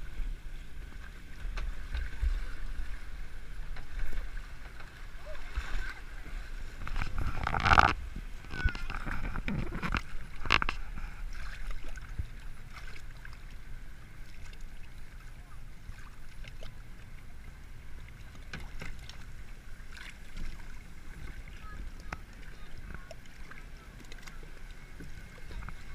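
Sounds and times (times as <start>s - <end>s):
water rushing and sloshing: 0.0s - 25.9s
boat knocks: 17.9s - 19.3s.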